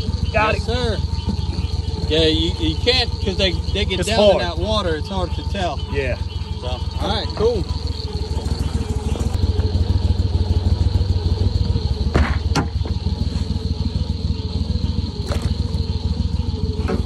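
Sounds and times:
mud motor running: 0.0 - 17.0.

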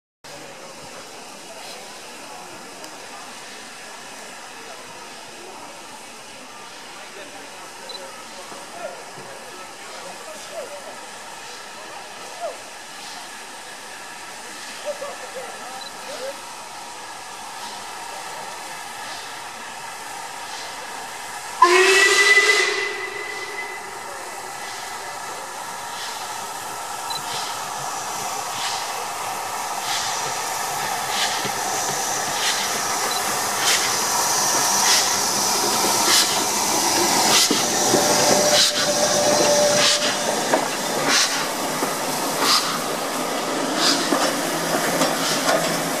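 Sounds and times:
steam hissing: 0.3 - 46.0
steam locomotive exhaust beats: 16.4 - 46.0
steam whistle blast: 21.6 - 24.4, 38.0 - 40.3.

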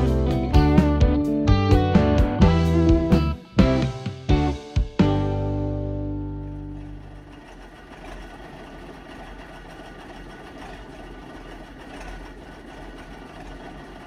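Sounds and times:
diesel locomotive engine idling: 4.4 - 14.0.

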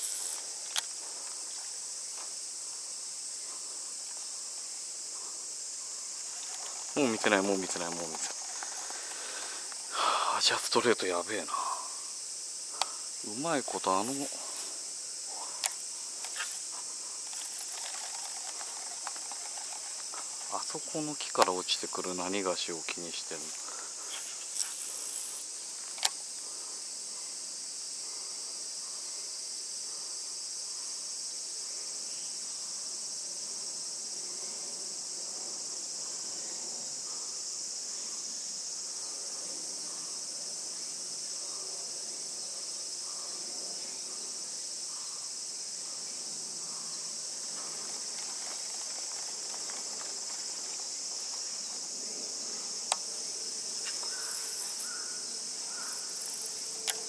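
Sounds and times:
insects buzzing: 0.0 - 57.0
sharp clicks: 17.2 - 20.5.

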